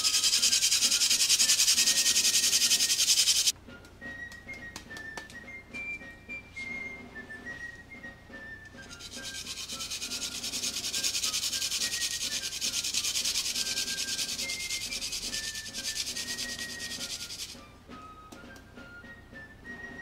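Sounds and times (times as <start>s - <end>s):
hand grater scraping: 0.0s - 3.5s, 8.8s - 17.6s.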